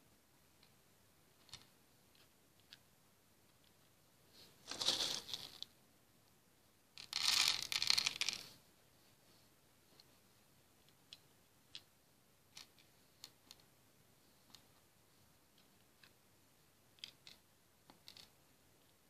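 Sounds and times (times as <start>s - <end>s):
plastic beads rattling: 4.6s - 5.7s, 7.0s - 8.5s.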